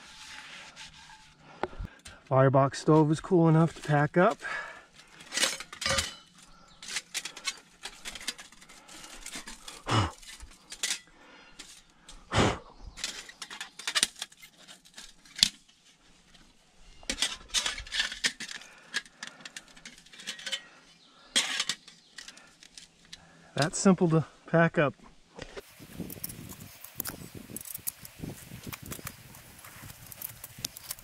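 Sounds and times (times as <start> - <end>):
metal panels clinking and rattling: 4.4 - 11.8, 17.1 - 22.8.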